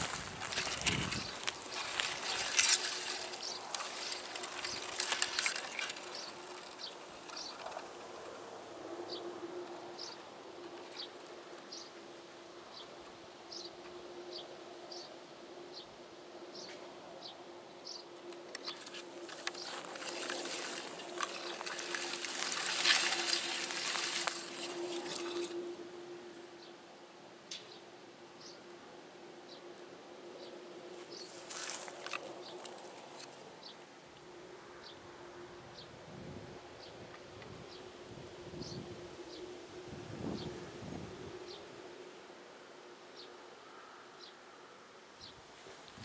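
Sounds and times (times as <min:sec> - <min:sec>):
grass rustling against microphone: 0:00.0 - 0:11.9, 0:18.2 - 0:26.4, 0:30.8 - 0:33.8, 0:45.2 - 0:46.0.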